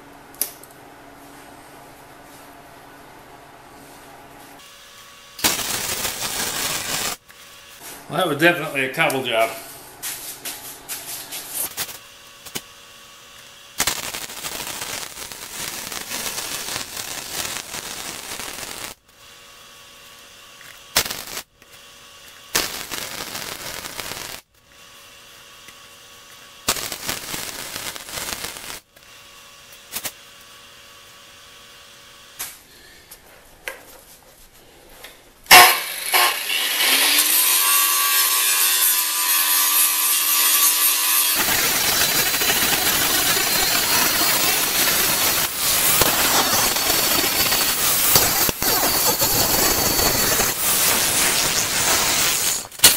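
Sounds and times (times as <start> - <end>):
welder arc crackling: 5.3 - 9.5, 11.5 - 19.1, 20.0 - 24.5, 26.6 - 29.1, 29.7 - 30.5, 38.4 - 52.9
angle grinder grinding: 35.5 - 52.9.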